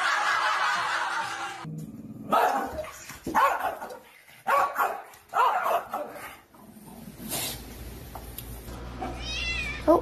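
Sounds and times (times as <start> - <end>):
small dog barking: 2.3 - 6.4.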